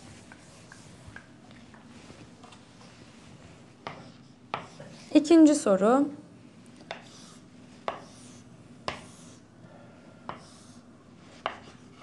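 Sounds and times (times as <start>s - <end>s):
chalk tapping on chalkboard: 3.8s - 5.1s, 6.8s - 9.4s, 10.3s - 10.7s, 11.4s - 12.0s
chalk scraping: 6.9s - 9.4s.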